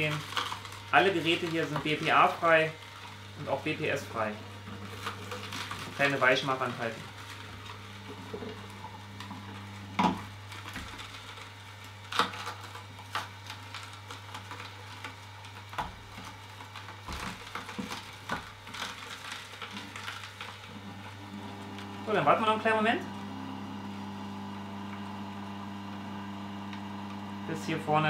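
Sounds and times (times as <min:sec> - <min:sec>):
carrots cracking: 0:00.0 - 0:03.2, 0:10.0 - 0:20.7
juicer motor hum: 0:00.0 - 0:28.0.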